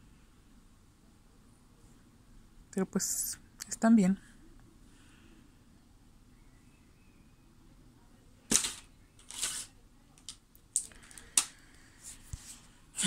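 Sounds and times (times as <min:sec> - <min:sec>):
handling rustles: 0:08.5 - 0:12.8.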